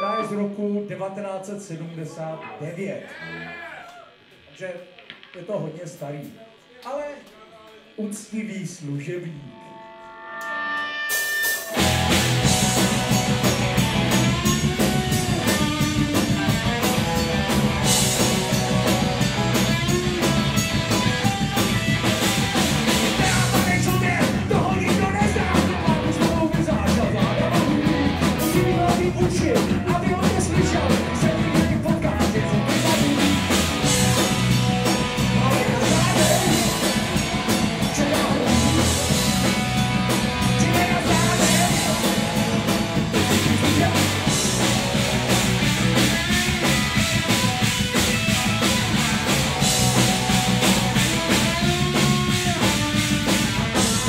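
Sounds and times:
electric guitar: 0:09.3 - 0:54.0
bass guitar: 0:09.5 - 0:54.0
drum kit: 0:10.4 - 0:54.0
person singing: 0:35.3 - 0:37.2, 0:37.8 - 0:39.1, 0:40.5 - 0:42.3.

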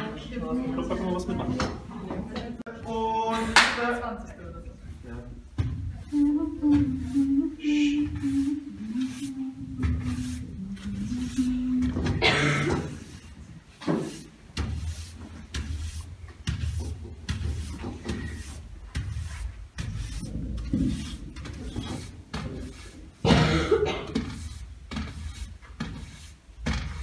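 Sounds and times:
push broom sweeping wooden floor: 0:05.6 - 0:27.0.

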